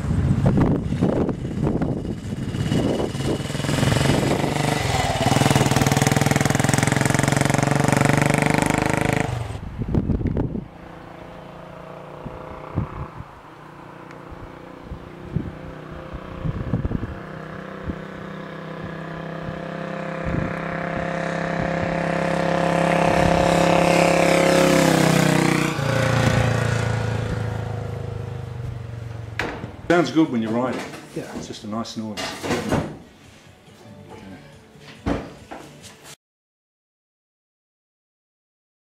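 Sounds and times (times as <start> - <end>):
motorcycle engine passing: 0.0 - 30.3.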